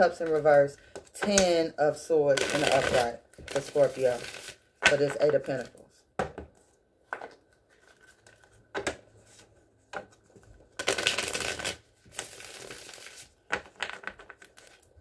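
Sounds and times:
cards shuffling: 2.4s - 5.7s, 7.1s - 8.6s, 10.4s - 15.0s.

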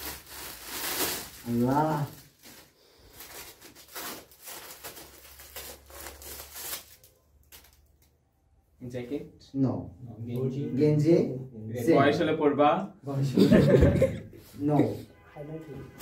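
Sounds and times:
foil gift wrap crinkling: 0.0s - 8.0s
tape being peeled: 0.0s - 8.2s.

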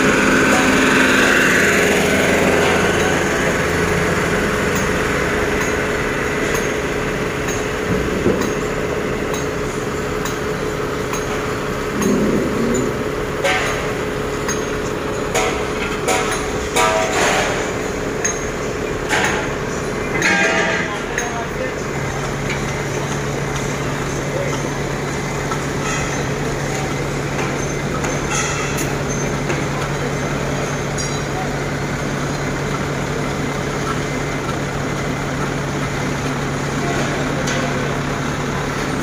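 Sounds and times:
forklift engine passing: 0.0s - 5.6s
diesel engines idling: 0.0s - 39.0s
metal clanks and knocks: 4.7s - 32.9s.

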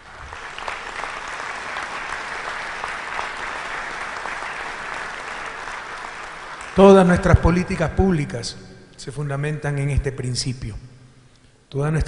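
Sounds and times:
audience applause: 0.0s - 7.3s.

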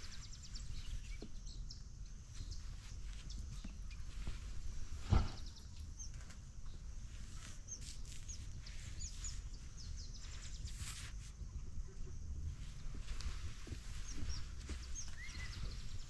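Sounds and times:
small birds chirping: 0.0s - 16.0s
steady low rumble: 1.4s - 16.0s
thump: 5.0s - 5.5s.

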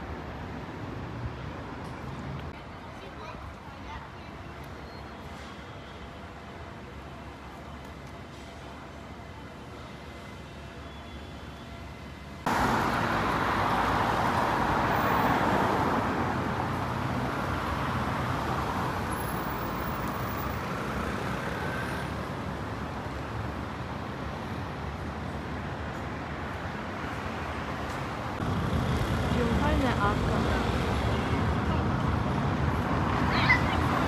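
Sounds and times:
passing cars: 12.4s - 34.0s.

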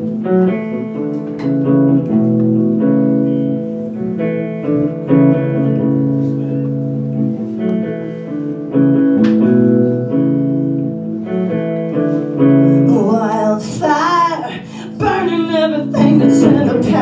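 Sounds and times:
rock band guitar chords: 0.0s - 17.0s
woman singing: 12.8s - 17.0s.

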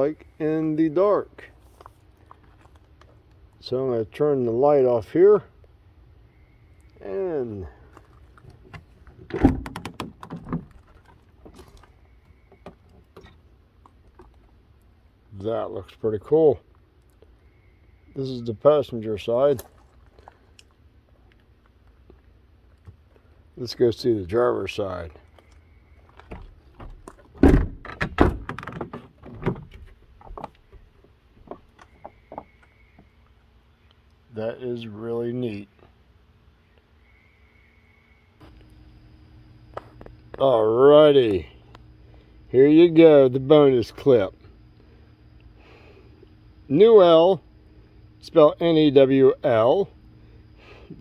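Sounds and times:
van door unlatching clunk: 8.5s - 11.6s, 26.2s - 30.4s.

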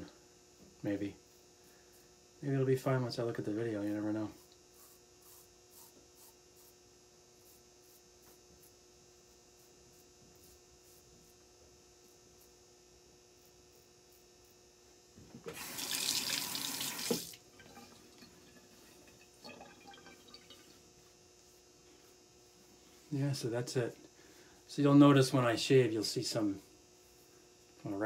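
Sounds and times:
low steady hum: 0.0s - 28.0s
tap running into sink: 15.4s - 18.0s.

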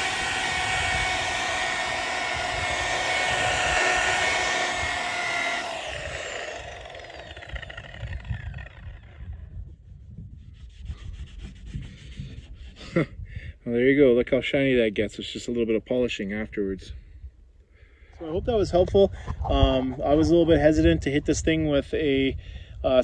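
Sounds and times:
polisher whining: 0.0s - 9.4s
polisher winding down: 0.0s - 9.4s.

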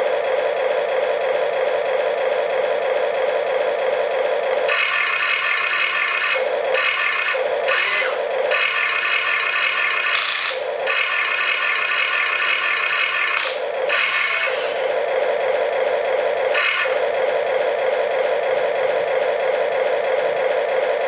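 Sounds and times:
toy electric motors whining: 4.5s - 17.2s.

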